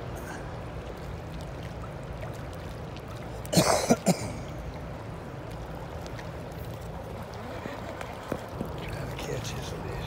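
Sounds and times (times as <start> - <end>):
man coughing: 3.5 - 4.4.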